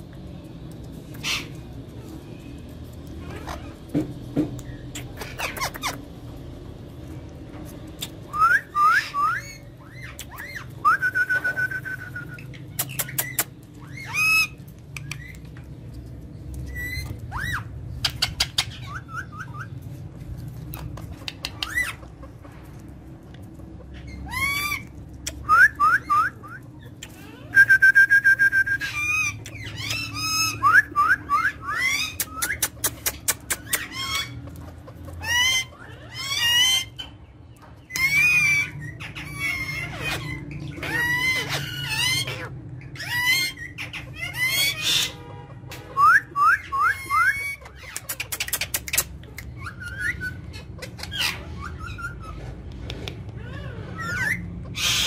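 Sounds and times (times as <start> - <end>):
parakeets chirping and squawking: 0.3 - 27.7, 28.6 - 55.0
fast rattling calls: 1.1 - 2.2, 3.0 - 6.3, 9.0 - 15.7, 20.6 - 22.5, 31.4 - 37.3, 37.9 - 45.2, 46.0 - 52.7, 53.5 - 55.0.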